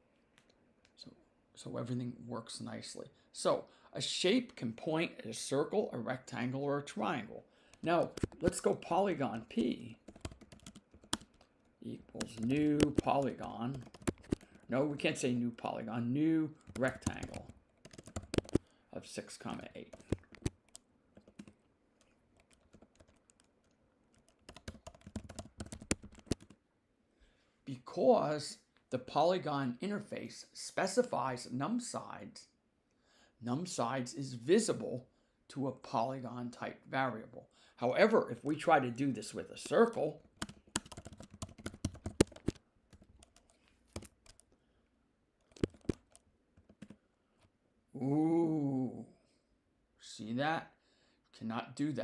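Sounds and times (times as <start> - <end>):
typing on computer keyboard: 7.8 - 8.7, 9.5 - 11.5, 12.1 - 14.7, 16.6 - 18.7, 19.8 - 26.6, 39.6 - 44.5, 45.4 - 47.0.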